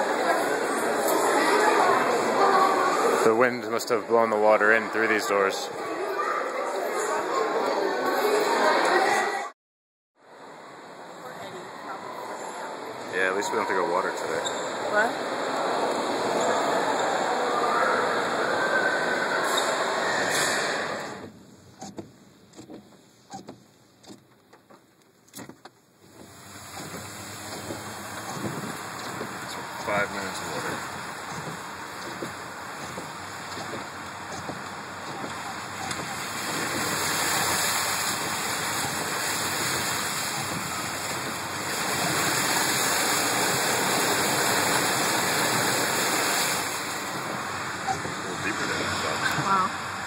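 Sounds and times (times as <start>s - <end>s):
tyres spraying through floodwater: 0.0s - 9.4s, 10.3s - 21.2s, 26.0s - 50.0s
steady hiss of rain: 10.2s - 21.2s, 26.0s - 50.0s
raindrops tapping on car roof: 21.2s - 48.8s.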